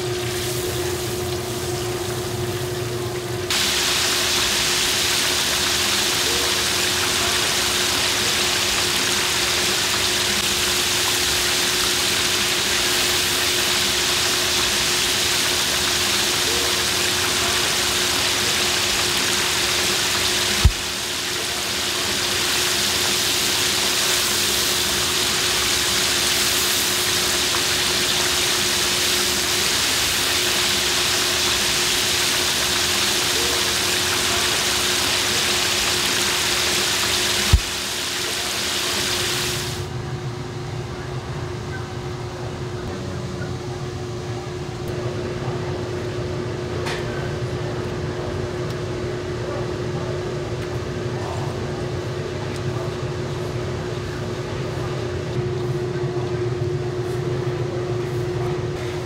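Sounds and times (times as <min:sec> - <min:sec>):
oil sizzling in deep fryer: 0:00.0 - 0:40.0.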